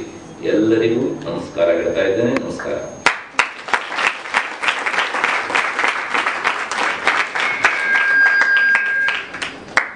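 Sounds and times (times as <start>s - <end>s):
thin steady high tone: 0.0s - 3.1s, 7.2s - 9.4s
audience applauding: 3.1s - 9.9s.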